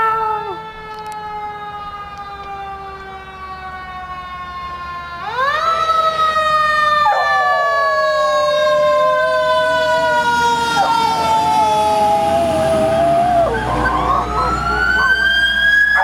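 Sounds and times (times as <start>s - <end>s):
fire truck siren wailing: 0.0s - 16.0s
dog howling: 7.2s - 15.4s.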